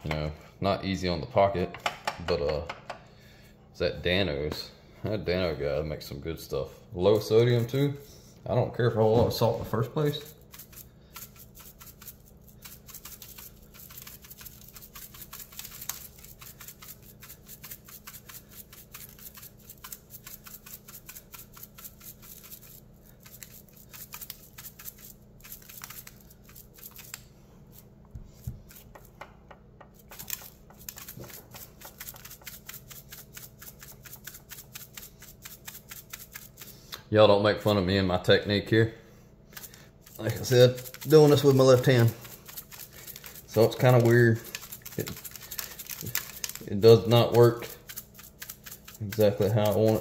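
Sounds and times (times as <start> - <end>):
seasoning shaker rattling: 7.2 - 7.9, 9.7 - 29.2, 29.9 - 36.8, 39.5 - 50.0.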